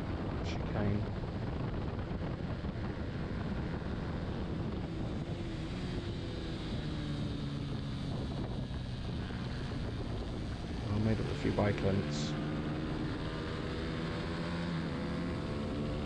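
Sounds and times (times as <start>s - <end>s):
wind rush over microphone: 0.0s - 11.1s
motorcycle engine running hard: 0.0s - 16.0s.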